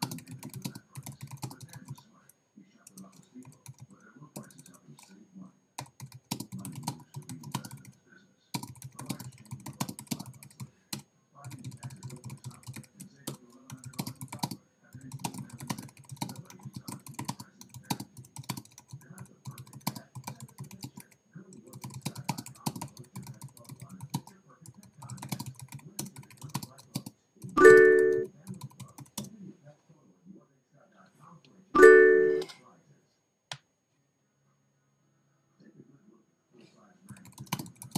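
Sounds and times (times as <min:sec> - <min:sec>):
typing on computer keyboard: 0:00.0 - 0:02.0, 0:02.9 - 0:05.2, 0:05.8 - 0:29.3, 0:37.1 - 0:37.9.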